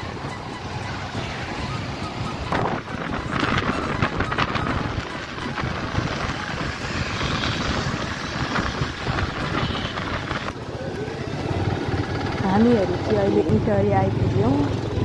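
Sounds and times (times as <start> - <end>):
wind rushing over microphone: 0.0 - 14.8
motorcycle engine: 0.0 - 15.0
road noise: 0.0 - 15.0.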